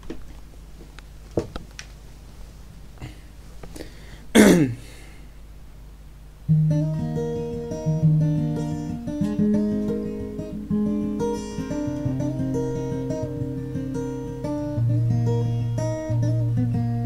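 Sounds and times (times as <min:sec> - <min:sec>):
faint clicks and taps: 0:00.0 - 0:02.0
acoustic guitar fingerpicking: 0:06.5 - 0:17.0.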